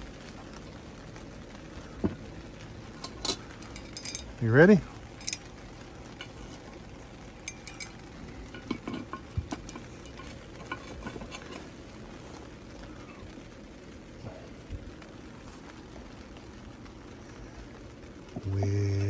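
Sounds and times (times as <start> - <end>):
metal tongs clinking on pot lid: 3.0 - 4.4, 7.4 - 11.7.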